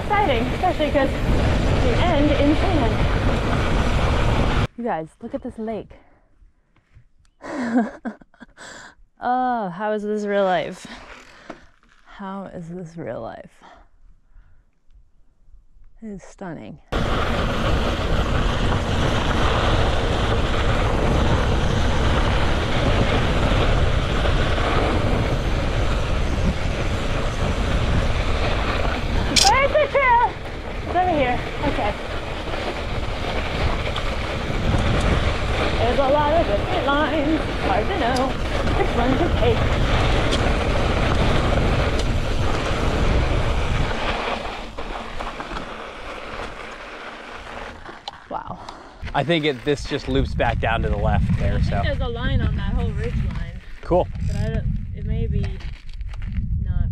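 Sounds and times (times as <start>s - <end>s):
wind rushing on microphone: 0.0s - 6.0s, 16.9s - 45.8s, 48.3s - 56.9s
tyre noise on gravel: 16.9s - 48.4s, 49.0s - 54.5s.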